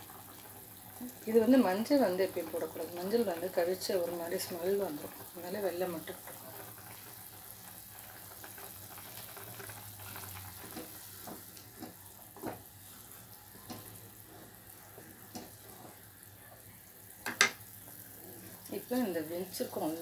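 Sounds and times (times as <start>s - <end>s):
soup boiling and bubbling: 0.0s - 20.0s
spatula knocking in pan: 17.2s - 17.6s.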